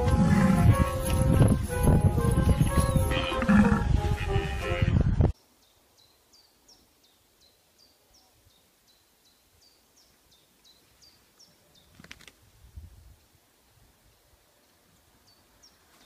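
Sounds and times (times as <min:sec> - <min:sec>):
wing flapping and scuffling: 0:11.8 - 0:12.5.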